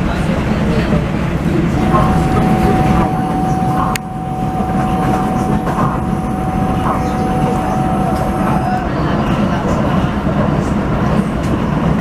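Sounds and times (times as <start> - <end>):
train wheels rumbling on rail: 0.0 - 12.0
high whine: 1.5 - 8.9.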